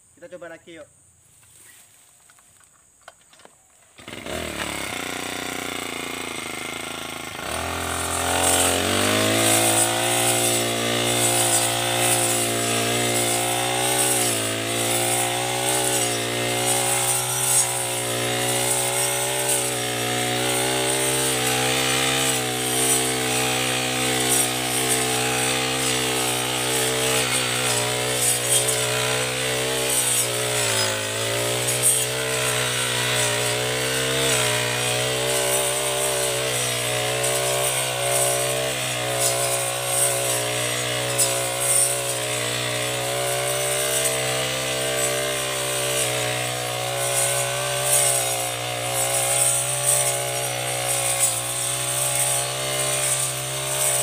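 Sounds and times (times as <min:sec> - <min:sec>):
brush cutter engine revving: 0:03.1 - 0:54.0
blade cutting tall grass: 0:03.9 - 0:54.0.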